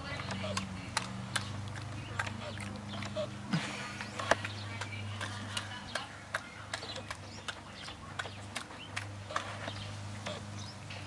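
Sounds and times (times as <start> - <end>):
puppy smacking its lips: 0.2 - 10.5.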